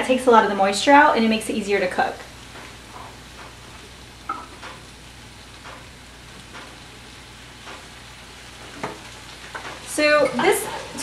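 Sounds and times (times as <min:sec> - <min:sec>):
tofu sizzling in a skillet: 0:01.7 - 0:11.0
faint pops and crackles: 0:02.2 - 0:11.0.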